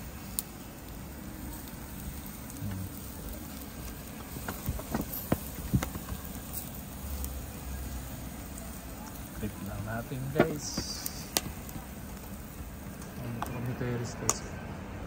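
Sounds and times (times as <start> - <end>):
low background hiss: 0.0 - 14.7
skewers clicking on grill rack: 9.9 - 12.3.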